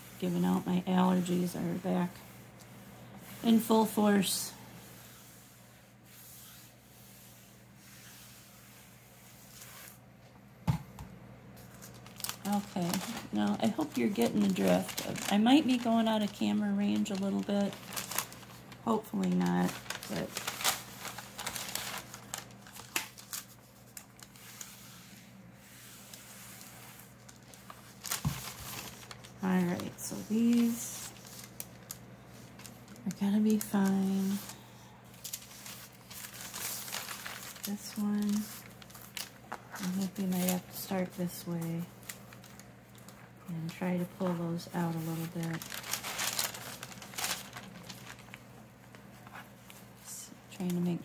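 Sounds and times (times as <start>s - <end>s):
iron rubbing over paper: 0.0s - 10.0s, 24.2s - 31.6s, 32.2s - 34.6s
iron sliding across paper: 4.8s - 10.0s
thin paper rustling and crinkling: 11.6s - 51.0s.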